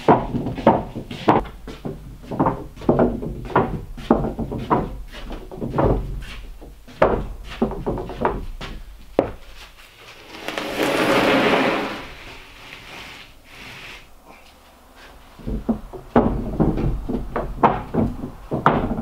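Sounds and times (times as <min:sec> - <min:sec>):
board sliding on board: 0:10.0 - 0:14.1.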